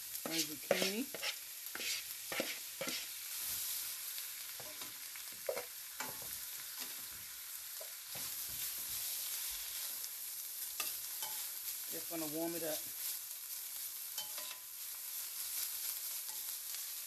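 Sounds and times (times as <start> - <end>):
food sizzling in a pan: 0.0 - 17.0
utensil scraping a pan: 0.2 - 3.2.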